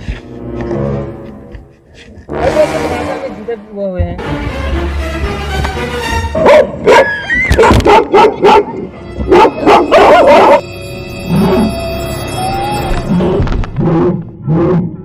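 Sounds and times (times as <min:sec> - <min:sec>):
background music: 0:00.0 - 0:15.0
recorded dog barking: 0:06.4 - 0:10.7.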